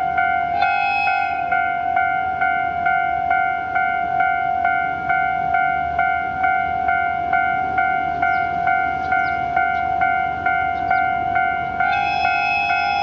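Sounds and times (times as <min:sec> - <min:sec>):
diesel locomotive horn: 0:00.0 - 0:02.4, 0:10.3 - 0:13.0
level-crossing warning bell: 0:00.0 - 0:13.0.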